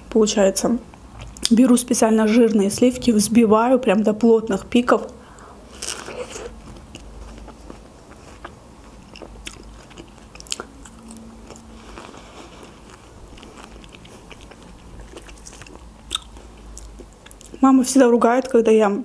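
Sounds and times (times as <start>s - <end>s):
wet chewing and mouth clicks: 5.8s - 17.6s.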